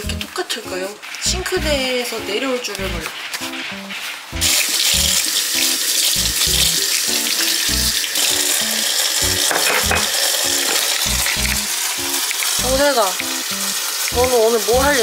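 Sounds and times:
light background music: 0.0 - 15.0
tap running into a steel sink: 6.0 - 12.6.

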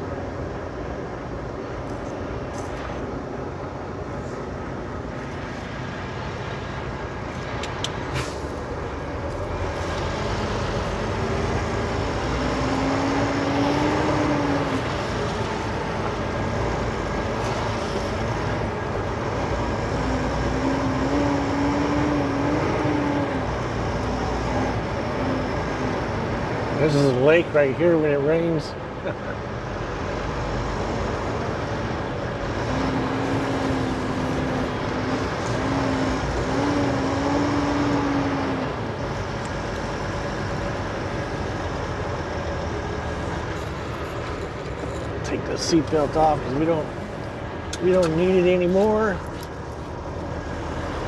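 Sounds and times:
diesel truck engine running: 0.0 - 51.0.

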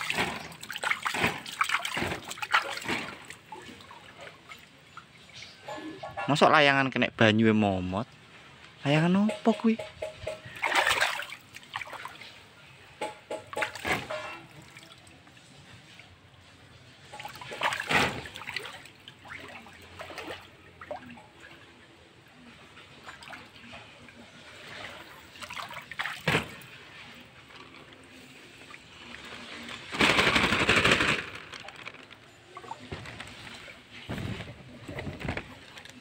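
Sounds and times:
water splashing on fabric: 0.0 - 4.6, 10.4 - 12.4, 17.1 - 21.1.

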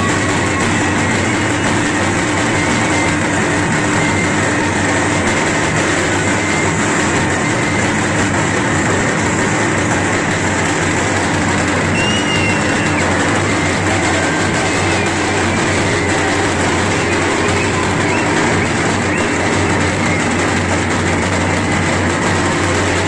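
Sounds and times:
crowd din: 0.0 - 23.0.

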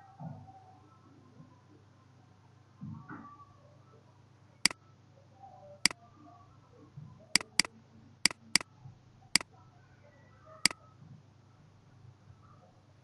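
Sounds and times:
mouse button clicking: 7.4 - 7.7, 8.3 - 8.6.

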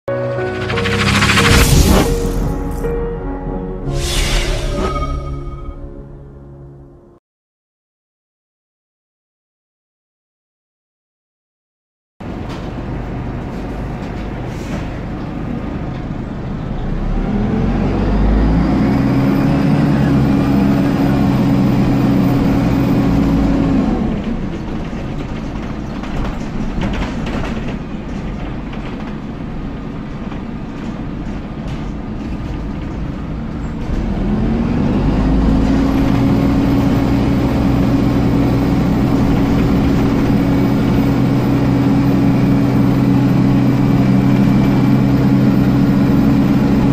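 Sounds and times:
bus engine and road noise: 12.2 - 46.9.

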